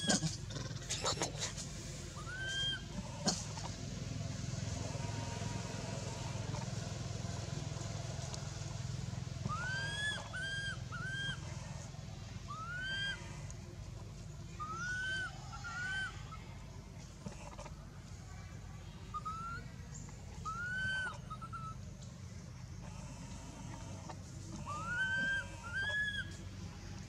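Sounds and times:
infant monkey cooing: 0:00.0 - 0:01.6, 0:02.2 - 0:03.6, 0:09.4 - 0:11.5, 0:12.5 - 0:13.3, 0:22.8 - 0:26.4.

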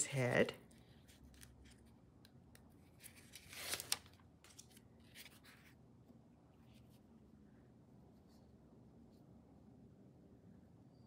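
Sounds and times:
paper rustling and crinkling: 0:00.7 - 0:05.8.

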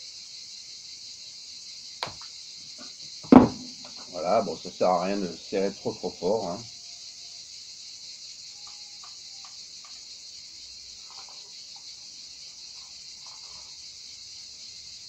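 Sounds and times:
faint ticks of wire handled: 0:12.7 - 0:13.8.

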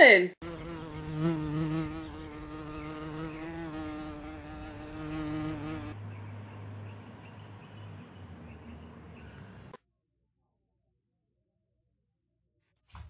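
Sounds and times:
flying insect buzzing: 0:00.4 - 0:06.0.

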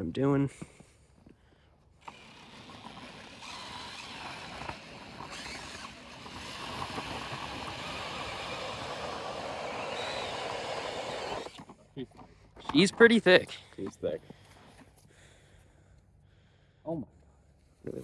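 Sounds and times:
ice auger grinding: 0:02.0 - 0:11.8.

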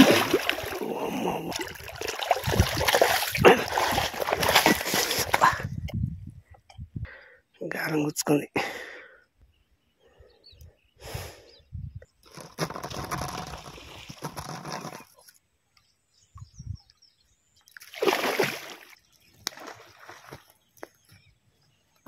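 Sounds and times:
water splashing in a stream: 0:00.0 - 0:05.5, 0:17.7 - 0:20.5.

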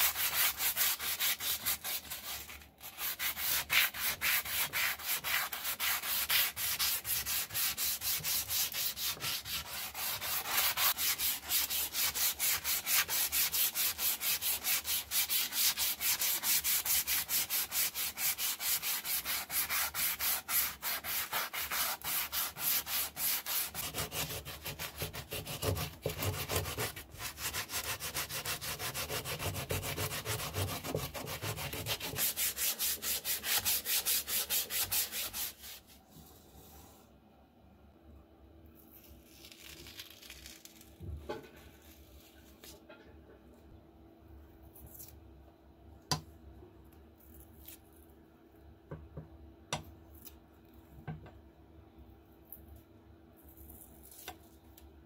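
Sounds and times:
sandpaper rubbing on wood: 0:00.0 - 0:35.8.

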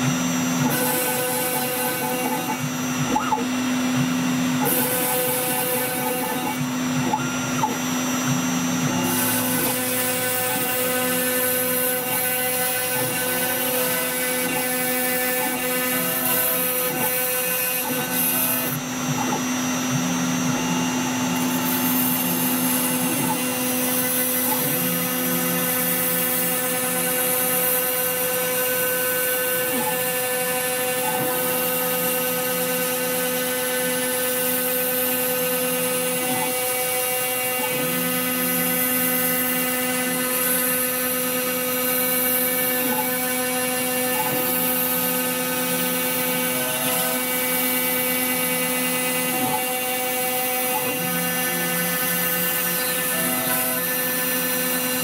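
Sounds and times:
router spindle whine: 0:00.0 - 0:55.0.

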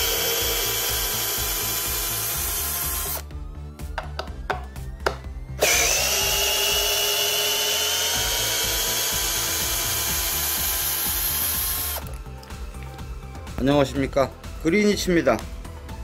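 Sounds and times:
drill clicks: 0:00.0 - 0:03.2, 0:05.6 - 0:12.1
cordless drill motor whining: 0:00.0 - 0:03.3, 0:05.6 - 0:12.1.

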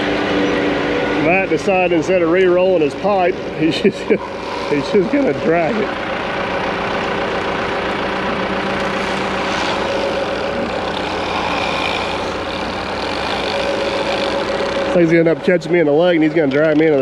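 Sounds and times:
excavator diesel engine running: 0:00.0 - 0:17.0
drain tile dragging: 0:08.8 - 0:15.0.

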